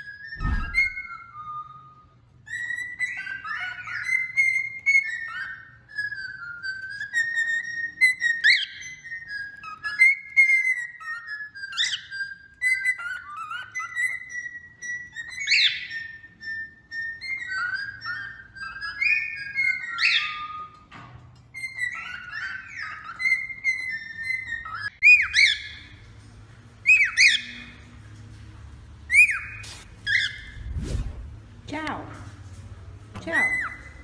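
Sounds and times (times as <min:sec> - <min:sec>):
sharp upward-sweeping squeak: 0:00.0 - 0:01.8
cockatiel warbling whistles: 0:00.0 - 0:01.9, 0:29.1 - 0:30.7.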